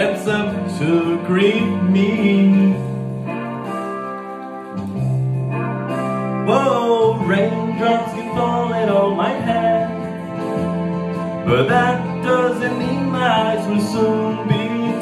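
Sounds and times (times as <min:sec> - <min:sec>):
man singing: 0:00.0 - 0:03.0, 0:06.4 - 0:10.6, 0:11.4 - 0:15.0
instrumental backing music: 0:00.0 - 0:15.0.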